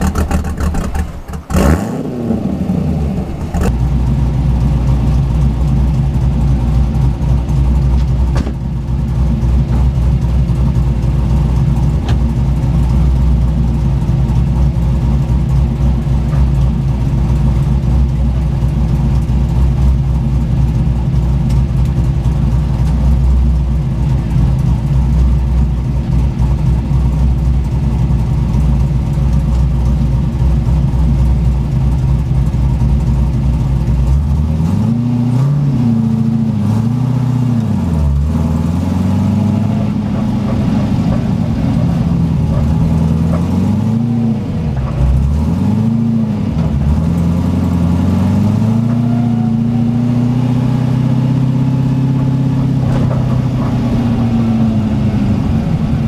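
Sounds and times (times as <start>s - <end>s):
engine revving: 0.0s - 4.3s, 34.1s - 56.0s
car engine idling: 0.0s - 56.0s.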